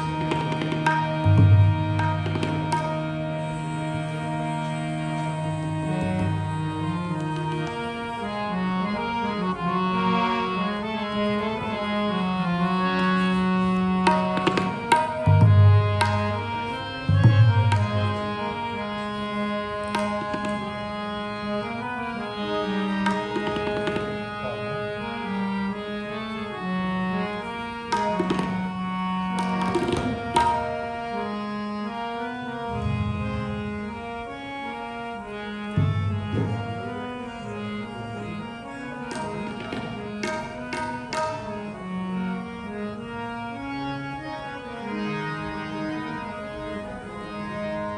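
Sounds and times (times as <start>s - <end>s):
tabla strokes: 0.0s - 3.8s, 14.0s - 18.4s, 19.8s - 20.9s, 23.0s - 24.2s, 27.9s - 30.9s, 35.8s - 37.0s, 39.0s - 41.6s
harmonium sustained chords: 0.0s - 47.9s.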